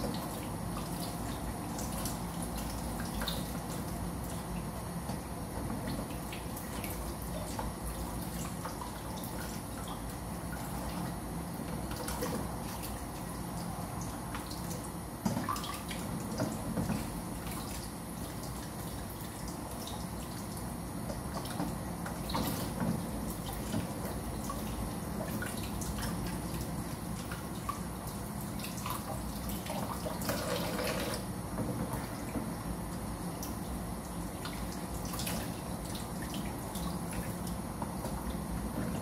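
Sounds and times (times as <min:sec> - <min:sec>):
water splashing and dripping: 0:33.4 - 0:39.0.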